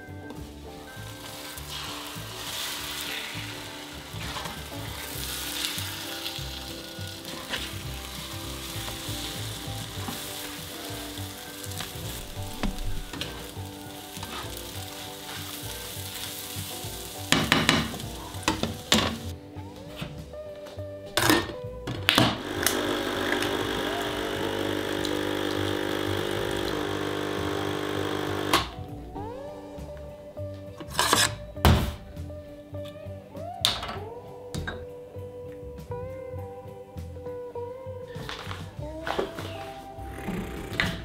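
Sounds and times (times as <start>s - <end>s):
omelette sizzling in a pan: 0.7s - 19.3s, 22.4s - 28.5s
plastic spatula scraping a pan: 1.2s - 19.3s.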